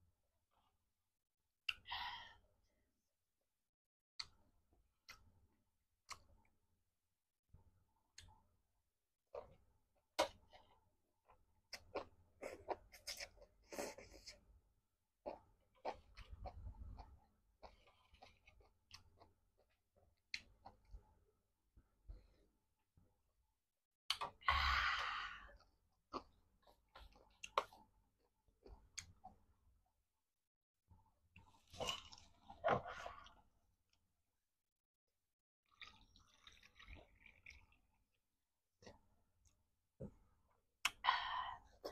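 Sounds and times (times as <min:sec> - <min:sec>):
person slurping and chewing noodles: 0:15.2 - 0:19.8, 0:31.4 - 0:33.4, 0:35.7 - 0:37.8.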